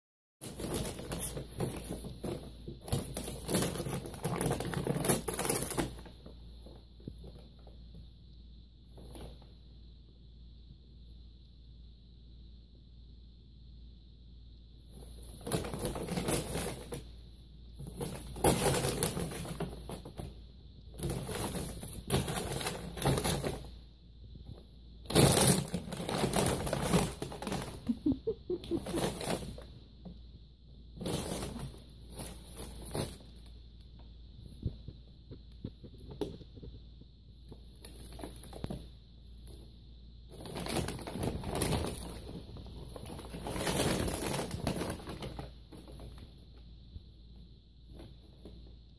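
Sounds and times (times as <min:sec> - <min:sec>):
paper bag crinkling: 0:25.1 - 0:29.7, 0:40.3 - 0:46.2.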